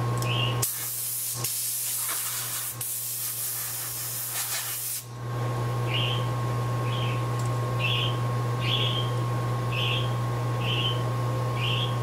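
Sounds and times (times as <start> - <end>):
compressed air spraying: 0.6 - 5.1.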